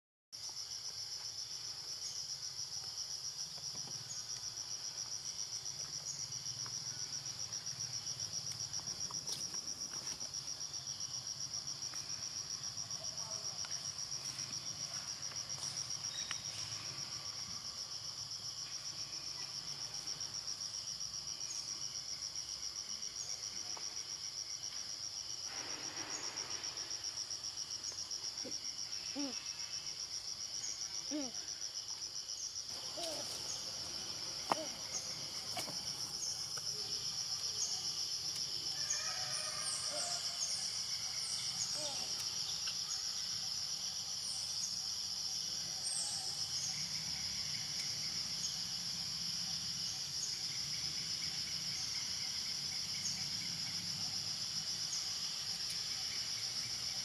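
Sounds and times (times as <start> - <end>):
insects trilling: 0.4 - 57.0.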